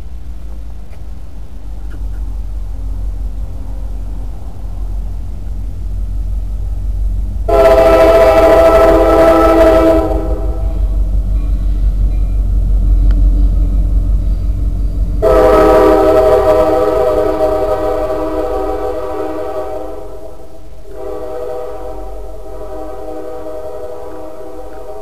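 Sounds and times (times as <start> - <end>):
low rumble: 0.0 - 25.0
locomotive air horn blast: 7.5 - 11.0, 15.2 - 25.0.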